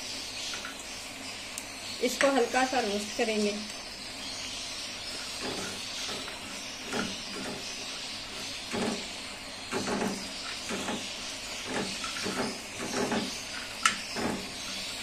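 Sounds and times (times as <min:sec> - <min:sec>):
frying hiss: 0:00.0 - 0:15.0
spatula scraping pan: 0:05.0 - 0:15.0.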